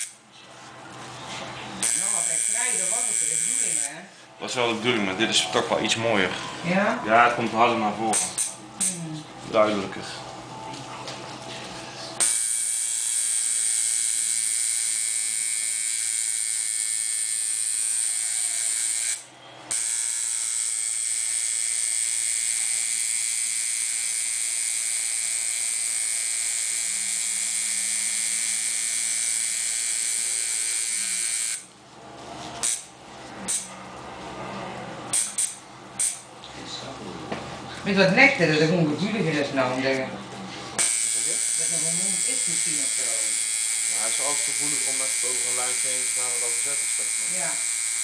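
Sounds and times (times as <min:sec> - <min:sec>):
tattoo machine buzzing: 0:00.0 - 0:00.2, 0:01.8 - 0:04.1, 0:08.1 - 0:09.0, 0:12.2 - 0:31.7, 0:32.6 - 0:32.9, 0:33.5 - 0:33.8, 0:35.1 - 0:36.3, 0:40.8 - 0:48.0.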